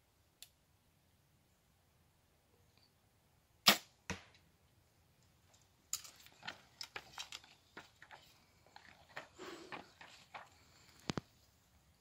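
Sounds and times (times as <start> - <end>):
arrow striking target: 3.6 - 4.4
bow string snap: 3.7 - 4.4.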